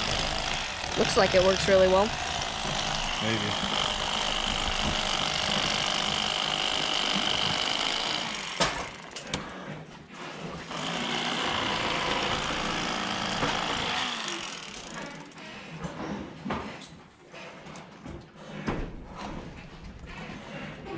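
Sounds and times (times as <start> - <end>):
electric knife buzzing: 0.0 - 9.1, 10.7 - 15.3.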